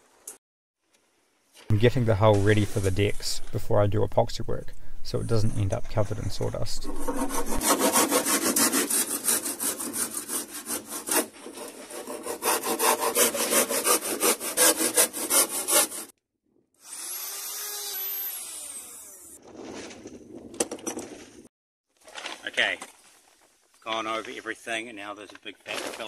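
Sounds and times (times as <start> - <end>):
hand saw cutting plywood: 6.8 - 16.2.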